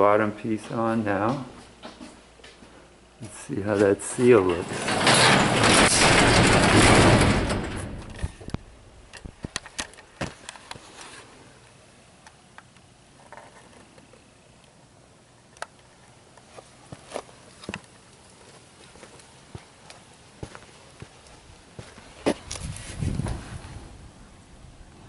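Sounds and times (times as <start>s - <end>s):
garage door closing: 4.0s - 10.0s.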